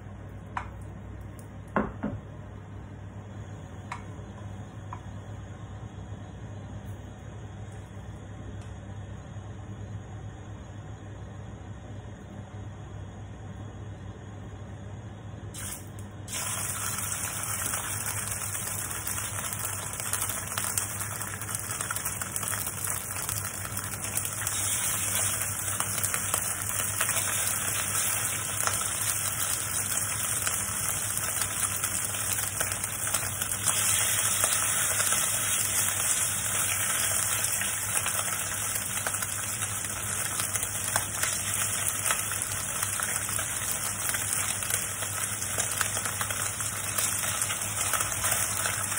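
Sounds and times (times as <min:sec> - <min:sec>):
meat sizzling in hot oil: 0:15.6 - 0:48.9.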